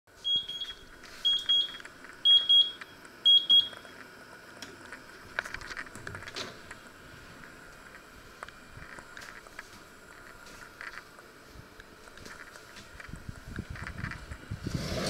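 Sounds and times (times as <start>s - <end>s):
oven timer double beeps: 0.2s - 3.9s.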